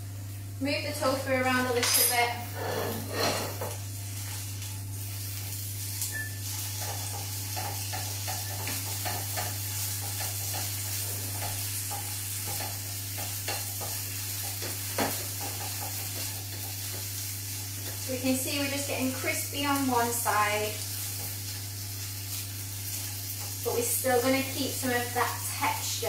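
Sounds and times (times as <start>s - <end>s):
spatula scraping a pan: 2.2s - 3.8s
tofu sizzling in a pan: 3.5s - 26.0s.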